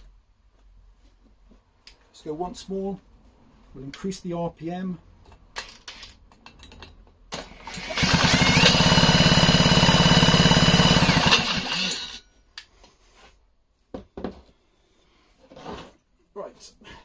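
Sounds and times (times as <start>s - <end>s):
impact wrench spinning engine: 7.4s - 12.2s.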